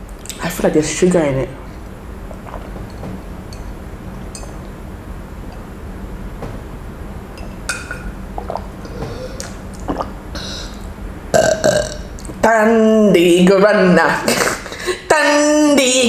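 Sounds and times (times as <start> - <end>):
person swallowing water: 2.2 - 3.4, 7.7 - 10.2, 11.4 - 12.4
glass clinking: 2.5 - 4.7, 7.4 - 8.6.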